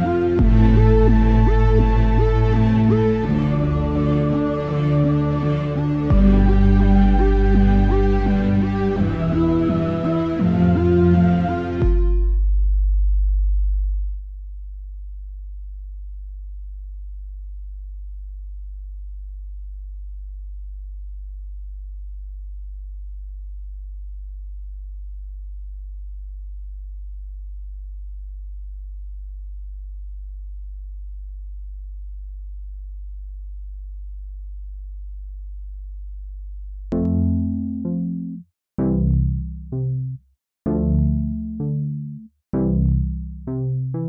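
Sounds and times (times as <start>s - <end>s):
low electronic drone: 0.0s - 13.6s, 31.1s - 44.0s.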